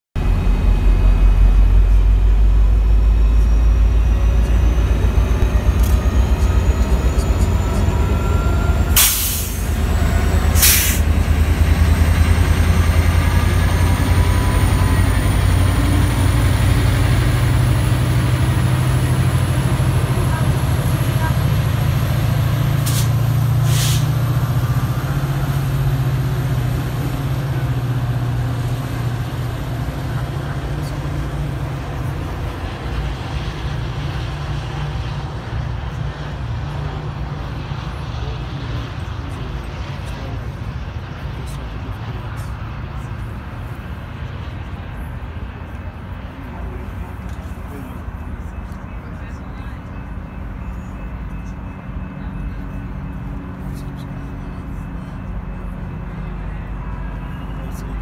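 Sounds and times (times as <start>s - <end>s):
diesel locomotive engine rumble: 0.1s - 58.0s
short hissing bursts: 10.6s - 11.0s, 22.9s - 24.1s.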